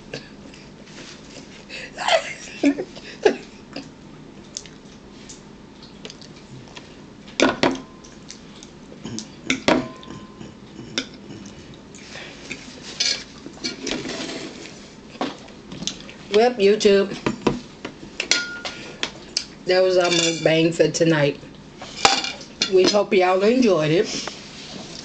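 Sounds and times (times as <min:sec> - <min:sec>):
dishes and cutlery clinking: 0:18.2 - 0:18.9, 0:20.0 - 0:20.6, 0:22.0 - 0:23.1.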